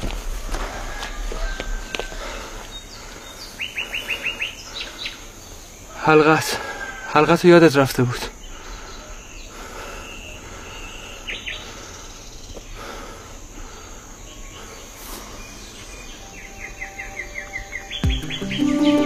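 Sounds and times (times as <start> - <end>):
insects: 0.0 - 18.8
background hiss: 0.0 - 19.0
faint bird chirps: 8.3 - 12.8, 13.8 - 19.0.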